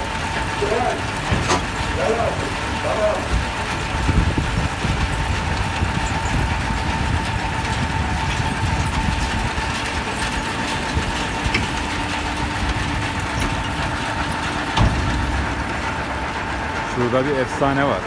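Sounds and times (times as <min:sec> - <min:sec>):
diesel tractor engine idling: 0:00.0 - 0:18.0
high machinery whine: 0:00.0 - 0:18.0.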